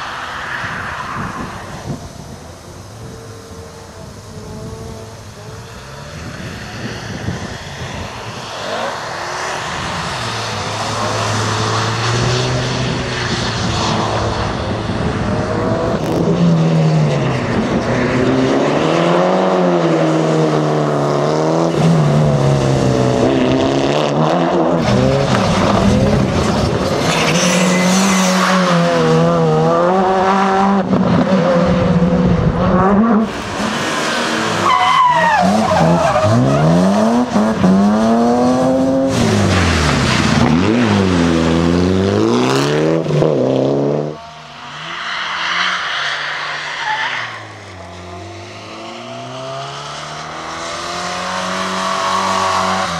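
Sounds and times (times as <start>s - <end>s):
rally car engines revving: 0.0s - 52.9s.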